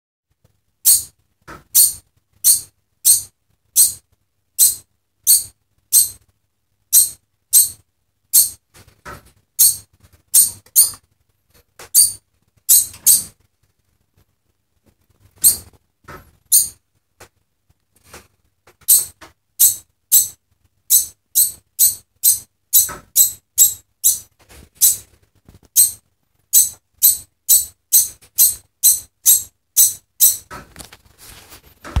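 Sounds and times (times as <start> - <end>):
degu alarm calls: 0.8 - 1.1, 1.7 - 4.0, 4.6 - 6.2, 6.9 - 7.8, 12.0 - 13.3, 16.5 - 16.8, 18.8 - 25.0, 25.8 - 30.5.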